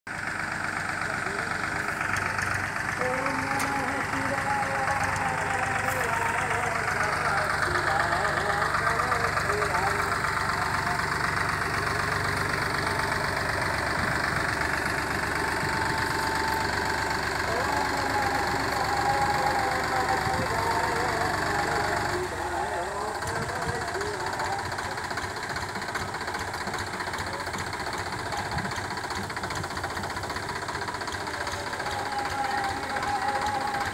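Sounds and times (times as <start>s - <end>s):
tractor diesel engine droning: 0.1s - 33.9s.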